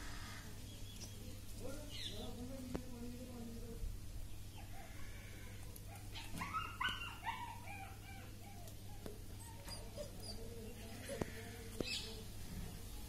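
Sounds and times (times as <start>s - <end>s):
puppies whimpering and yipping: 5.9s - 11.3s.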